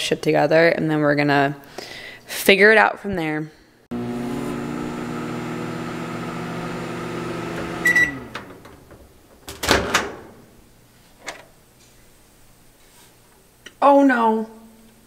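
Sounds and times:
microwave oven humming: 3.9 - 9.0.

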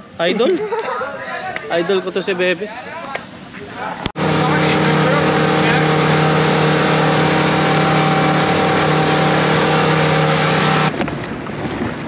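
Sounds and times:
quad bike engine running: 4.2 - 10.9.

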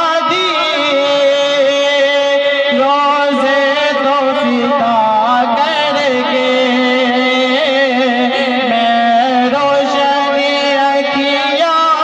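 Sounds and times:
man singing into a microphone: 0.0 - 12.0.

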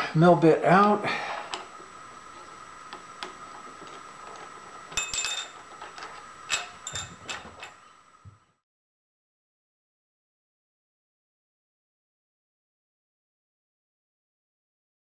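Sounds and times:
faint high hum: 0.0 - 8.6
metallic ring: 4.9 - 5.7, 6.5 - 8.0
metal tooling clinks and taps: 4.9 - 7.8.

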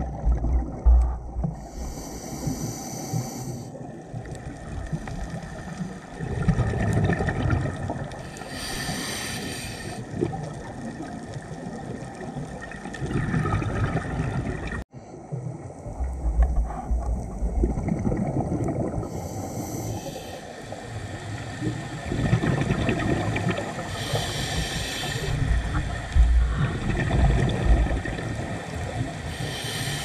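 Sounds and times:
hissing regulator inhalations: 1.6 - 3.8, 8.2 - 10.0, 19.1 - 20.9, 23.9 - 26.5, 29.2 - 30.0
bubbling exhalations: 12.9 - 14.8, 22.1 - 28.4.

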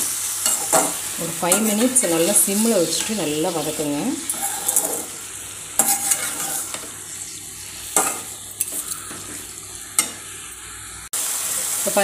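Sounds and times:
food sizzling in oil: 0.0 - 12.0
metal spatula scraping pan: 4.2 - 5.2, 5.8 - 7.0, 7.8 - 10.6.

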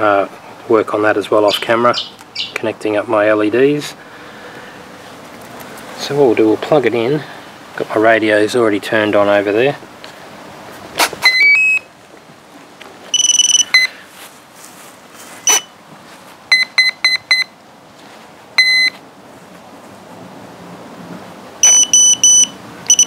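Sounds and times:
electronic beeps: 11.2 - 11.9, 13.1 - 13.9, 15.4 - 15.7, 21.6 - 23.0.

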